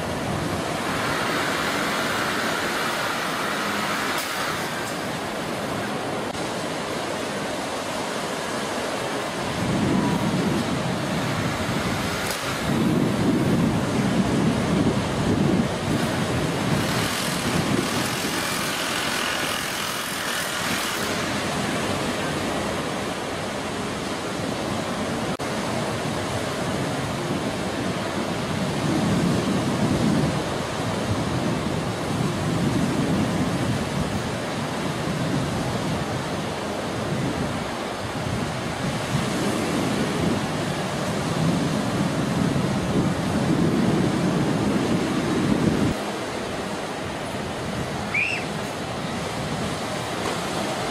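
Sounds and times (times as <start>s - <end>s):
ocean surf breaking: 0.0s - 50.9s
wind buffeting microphone: 0.0s - 50.9s.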